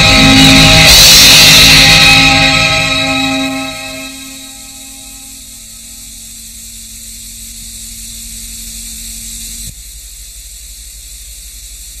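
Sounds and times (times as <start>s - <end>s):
low held tone: 0.0s - 10.4s
television hiss and hum: 3.3s - 12.0s.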